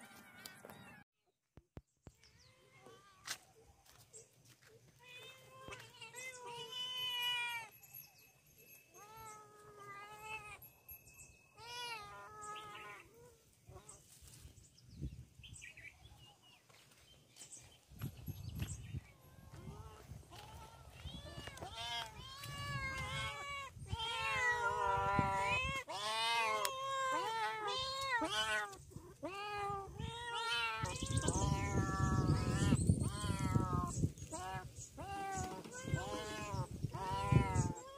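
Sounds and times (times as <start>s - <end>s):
cats meowing: 5.0s - 7.7s, 9.0s - 10.6s, 11.6s - 13.1s, 19.5s - 37.9s.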